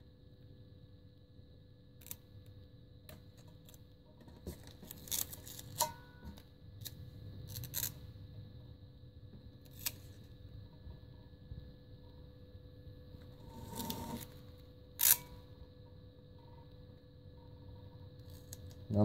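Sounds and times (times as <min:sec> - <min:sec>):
vinyl decal crinkling: 0:04.4 - 0:05.9.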